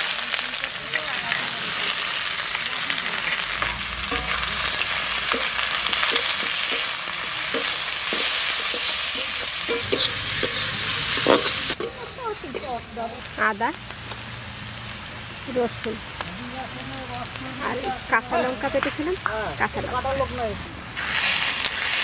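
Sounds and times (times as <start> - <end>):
onions sizzling in oil: 0.0 - 22.0
spatula scraping pan: 3.3 - 13.1.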